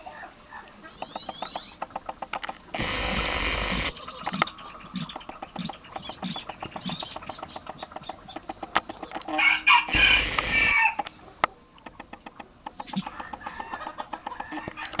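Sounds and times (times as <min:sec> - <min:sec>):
loud bird call: 0:08.9 - 0:11.3.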